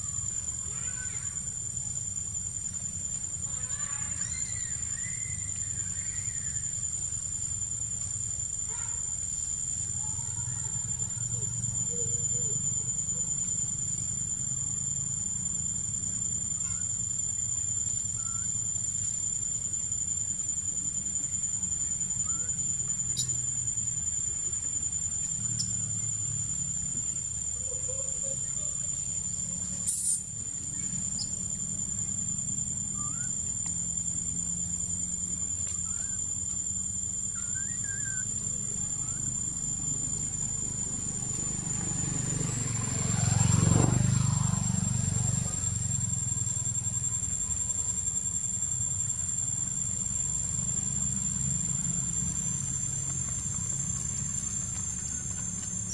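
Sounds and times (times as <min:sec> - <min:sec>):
high-pitched insect drone: 0:00.0 - 0:55.9
faint short chirps: 0:18.2 - 0:18.7, 0:29.5 - 0:31.4, 0:32.8 - 0:33.9.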